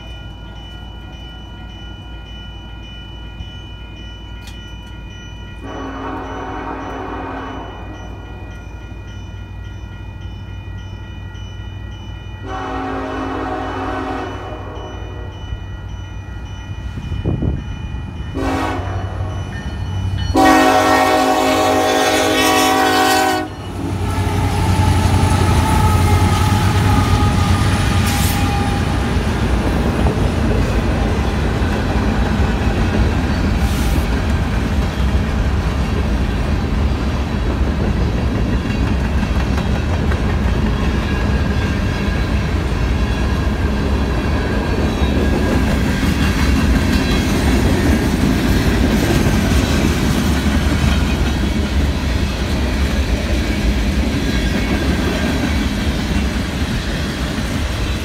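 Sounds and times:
crossing bell ringing: 0.0s - 58.0s
train air horn blasts: 5.6s - 8.0s, 12.4s - 15.4s, 18.4s - 19.4s, 20.3s - 29.2s
train wheels clickety-clack: 20.3s - 58.0s.

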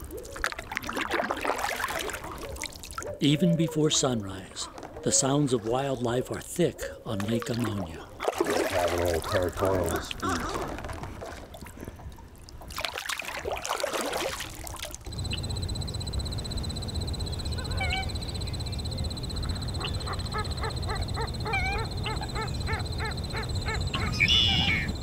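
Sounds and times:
rough splashing noise: 0.0s - 3.1s, 7.2s - 15.1s
ducks quacking: 8.2s - 10.7s, 19.4s - 25.0s
high-pitched marsh trill: 15.1s - 25.0s.

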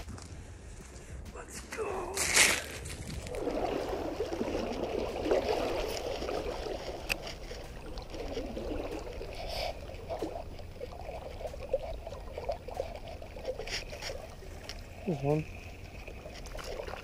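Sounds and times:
river water gurgling: 3.2s - 17.0s.

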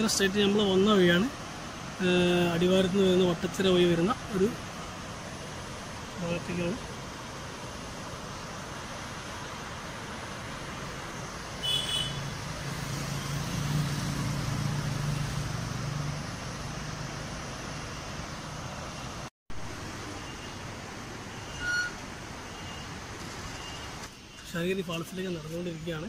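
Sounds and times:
vehicle engine passing: 12.2s - 17.8s.

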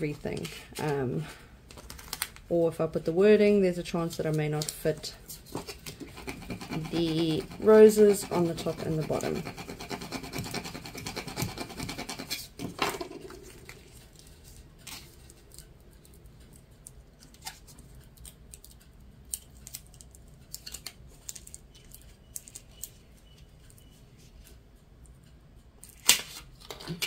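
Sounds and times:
tape crackling: 1.6s - 2.5s, 12.4s - 23.8s
tape rustling and scratching: 1.7s - 2.5s, 4.1s - 24.6s.

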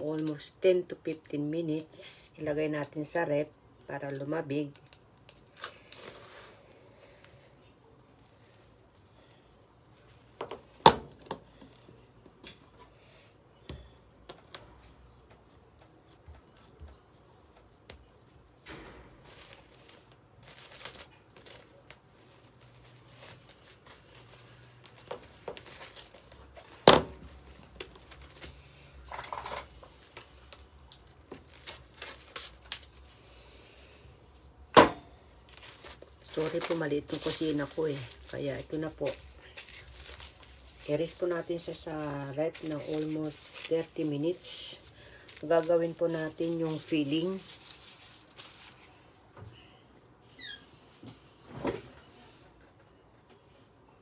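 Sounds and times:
cling wrap crinkling: 4.1s - 12.4s, 14.3s - 33.5s, 34.2s - 49.1s.

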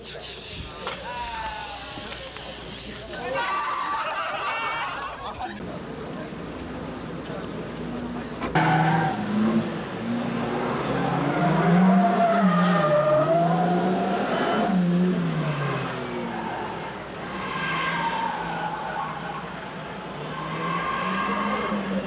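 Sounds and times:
car engine revving: 8.1s - 22.0s.

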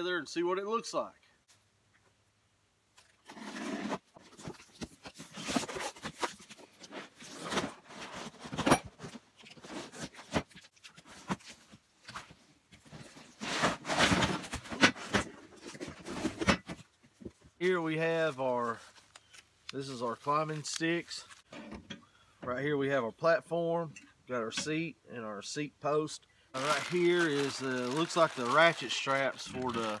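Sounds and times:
cardboard tearing and rustling: 26.6s - 30.0s.

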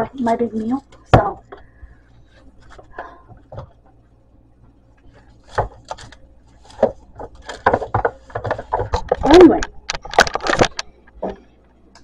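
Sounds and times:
camera handling knocks and rubbing: 6.7s - 9.2s.

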